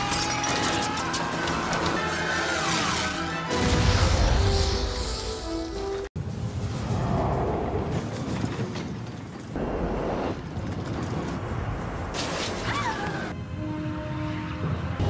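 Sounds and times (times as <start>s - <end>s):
film music: 0.0s - 6.1s, 13.1s - 15.0s.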